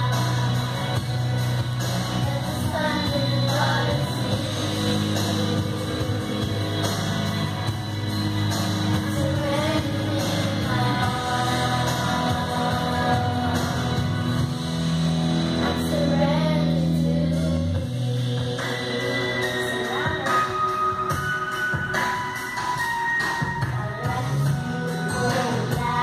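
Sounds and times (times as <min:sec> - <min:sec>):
instrumental accompaniment: 0:00.0 - 0:26.0
children singing: 0:02.2 - 0:07.5, 0:08.8 - 0:14.2.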